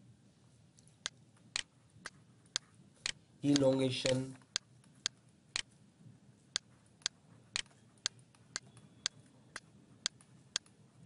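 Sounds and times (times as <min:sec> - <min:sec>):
faint room noise: 0:00.0 - 0:11.0
sharp regular ticking: 0:01.0 - 0:03.8, 0:04.4 - 0:05.8.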